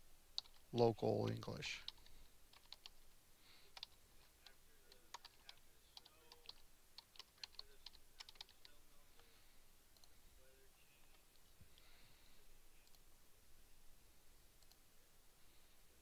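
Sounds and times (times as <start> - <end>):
typing on computer keyboard: 0.4 - 0.7, 1.8 - 3.0, 3.7 - 8.8.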